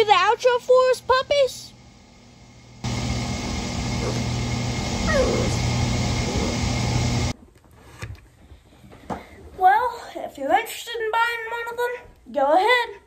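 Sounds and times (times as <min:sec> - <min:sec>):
loud steady rushing noise: 0:02.8 - 0:07.3.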